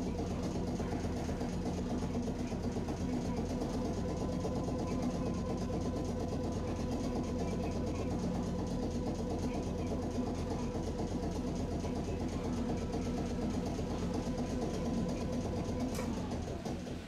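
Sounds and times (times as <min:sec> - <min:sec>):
streetcar machinery humming: 0:00.0 - 0:17.0.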